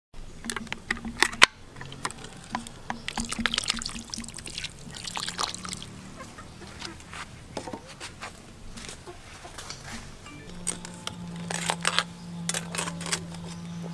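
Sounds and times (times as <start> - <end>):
granules pattering onto metal pot: 0.4 - 5.8.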